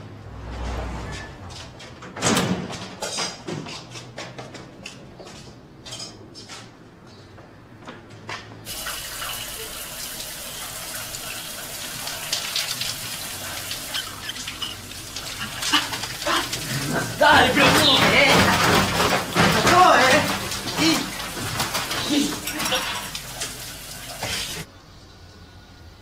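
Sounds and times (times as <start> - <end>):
shower running: 8.7 - 24.7.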